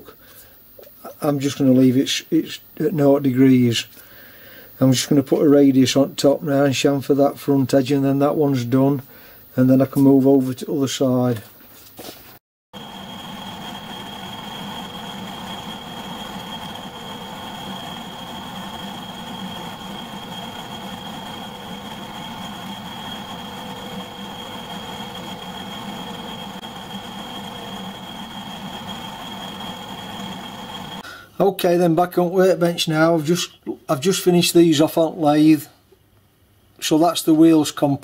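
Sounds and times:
metalworking lathe running: 12.8s - 31.0s.

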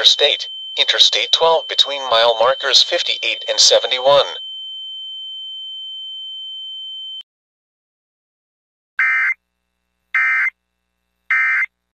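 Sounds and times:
high electronic tone: 0.0s - 4.4s.

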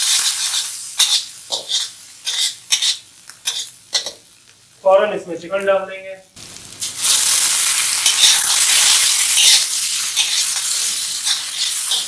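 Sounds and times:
metal spatula scraping wok: 0.0s - 4.2s, 7.9s - 12.0s
chicken sizzling in hot oil: 0.0s - 4.6s, 6.4s - 12.0s.

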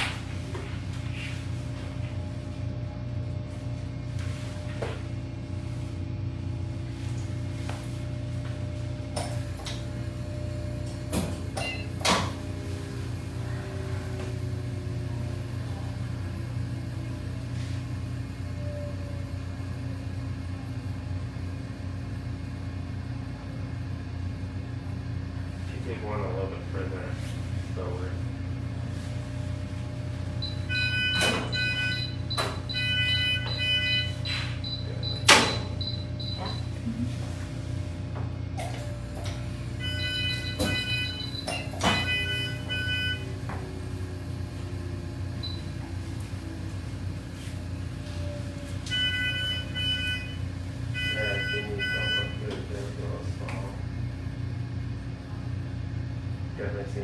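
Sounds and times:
electrical equipment humming: 0.0s - 57.0s
multi-tone alarm chord: 30.5s - 34.5s, 39.8s - 43.5s, 48.8s - 52.4s.

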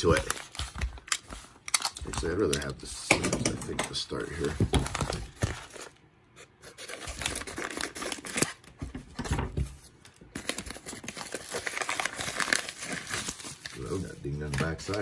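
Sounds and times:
paper envelope tearing: 6.6s - 8.7s, 10.3s - 15.0s.

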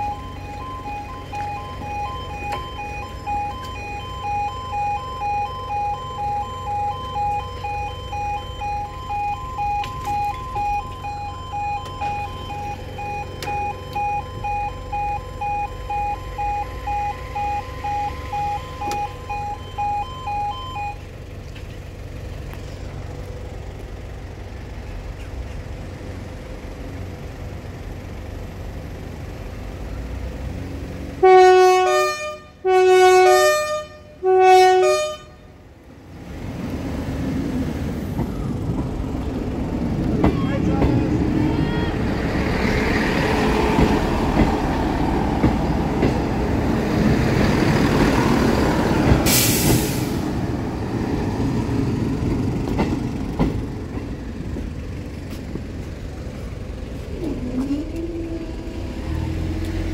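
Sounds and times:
level crossing alarm: 0.0s - 21.2s, 31.2s - 35.4s.

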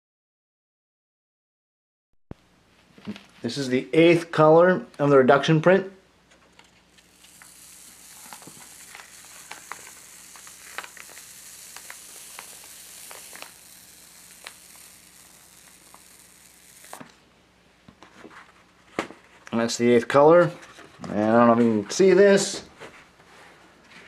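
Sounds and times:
paper peeling off inked block: 7.0s - 17.0s.

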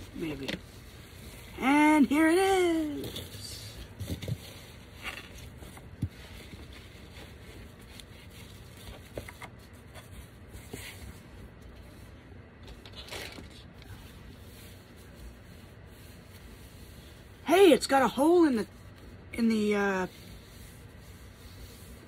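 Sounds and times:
record sleeve rustling: 2.8s - 11.8s, 12.6s - 16.5s.

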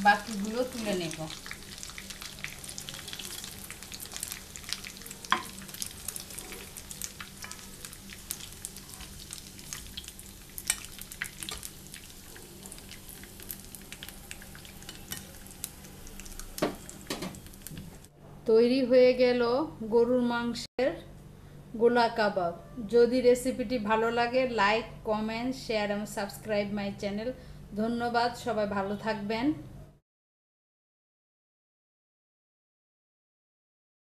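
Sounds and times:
oil sizzling in a frying pan: 0.0s - 18.1s.

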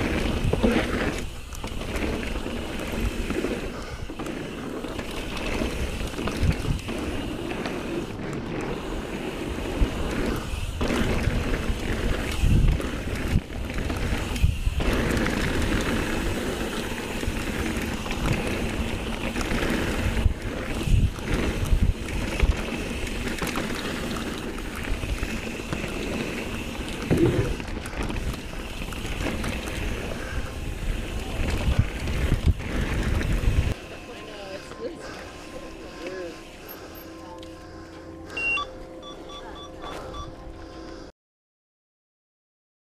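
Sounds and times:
bike thumps and rattles: 0.0s - 3.6s, 10.4s - 30.1s
wind rush and tyre noise: 0.0s - 33.8s.

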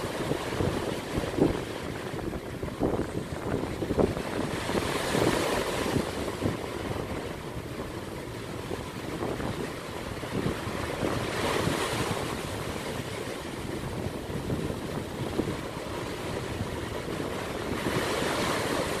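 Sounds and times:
small waves breaking on beach: 0.0s - 19.0s
wind buffeting microphone: 0.0s - 19.0s.

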